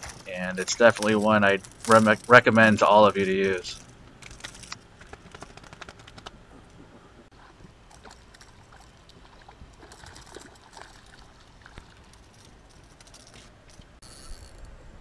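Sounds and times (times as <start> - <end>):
water splashing and trickling: 0.0 - 5.0, 7.3 - 14.2.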